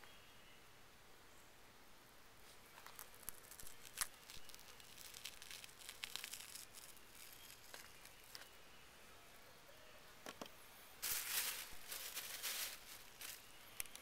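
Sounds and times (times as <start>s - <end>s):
fish skin tearing: 2.9s - 8.2s.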